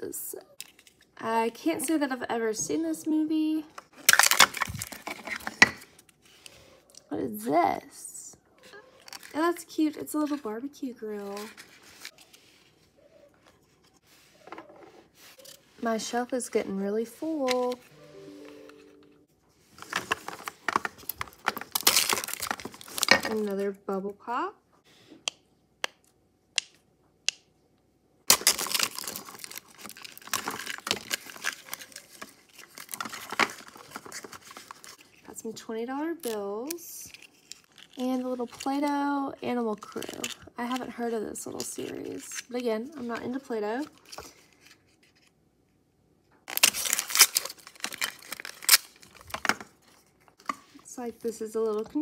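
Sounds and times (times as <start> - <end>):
plastic wrappers crinkling: 3.9 - 6.0, 19.7 - 23.6, 28.3 - 35.4, 36.2 - 44.8, 46.5 - 52.0.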